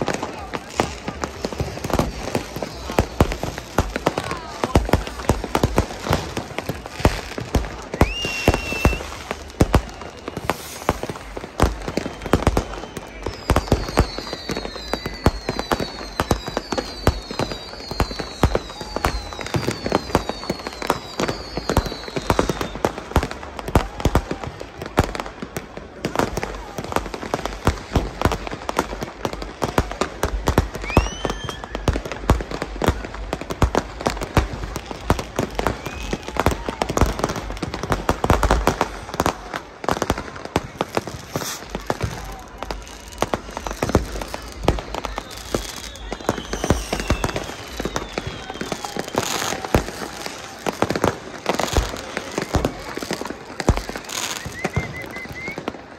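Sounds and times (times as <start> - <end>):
rising firework whistle: 0.0 - 24.8, 26.0 - 55.9
firecracker and rocket bangs: 0.0 - 55.9
short falling whistles: 7.9 - 9.5, 30.7 - 31.9, 41.3 - 49.7, 53.9 - 55.9.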